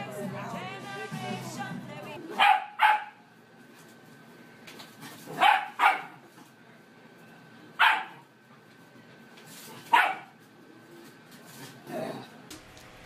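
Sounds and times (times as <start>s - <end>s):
puppy barking: 2.3s - 3.2s, 5.3s - 6.2s, 7.8s - 8.2s, 9.9s - 10.4s.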